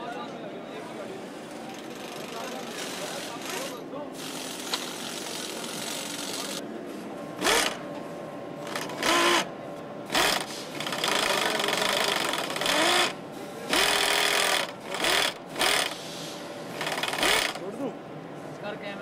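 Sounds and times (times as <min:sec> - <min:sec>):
factory hum: 0:00.0 - 0:19.0
power nut runners whirring: 0:07.4 - 0:07.9, 0:08.6 - 0:09.5, 0:10.1 - 0:16.1, 0:16.7 - 0:17.7.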